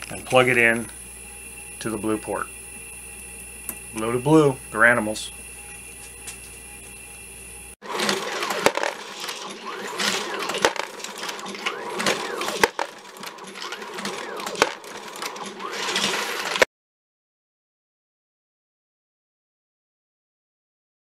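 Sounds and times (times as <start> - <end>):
mechanical clatter: 7.8 - 16.7.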